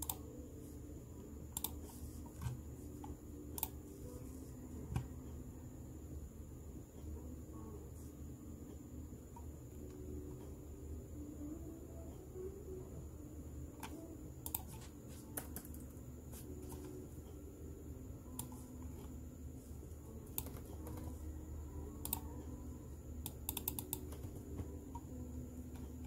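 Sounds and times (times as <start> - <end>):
keyboard typing: 0.0 - 0.3, 1.5 - 4.3, 13.8 - 17.0, 20.2 - 21.2, 22.0 - 22.4, 23.2 - 25.1.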